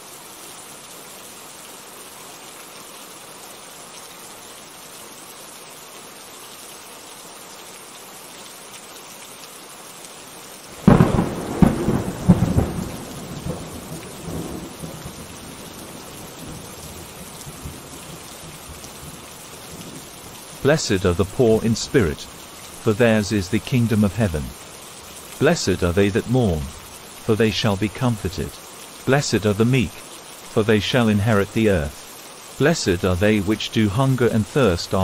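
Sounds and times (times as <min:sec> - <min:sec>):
steady rain: 0:00.0 - 0:35.0
rolling thunderclap: 0:10.8 - 0:16.6.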